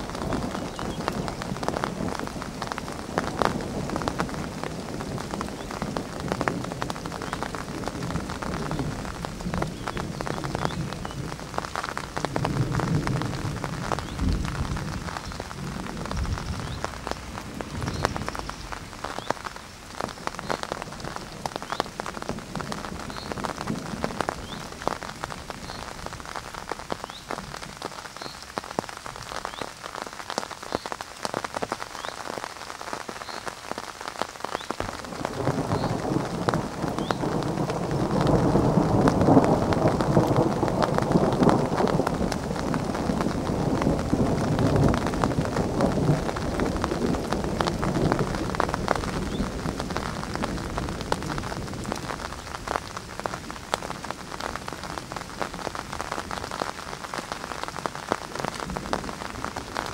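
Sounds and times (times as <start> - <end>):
distant thunder rumble: 0.0 - 26.3, 34.8 - 59.9
rain on a hard surface: 0.0 - 59.9.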